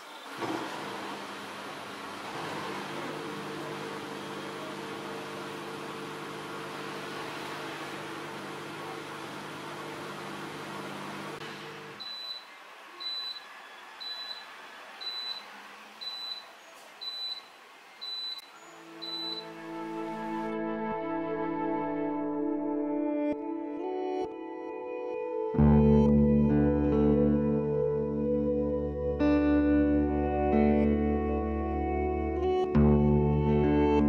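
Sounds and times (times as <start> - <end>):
dishwasher humming and hissing: 0.0 - 19.4
short high beeps: 12.0 - 13.4, 16.0 - 16.4, 18.0 - 19.5.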